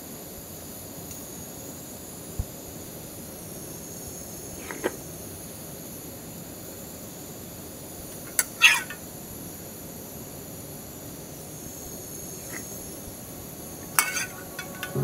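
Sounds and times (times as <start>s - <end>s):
metal ladle clinking against pot: 13.9s - 15.0s.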